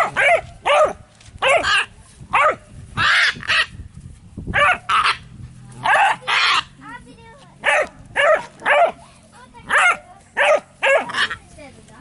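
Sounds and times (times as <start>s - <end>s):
young dog barking: 0.0s - 3.7s, 4.5s - 5.2s, 5.8s - 6.7s, 7.6s - 9.0s, 9.6s - 11.4s.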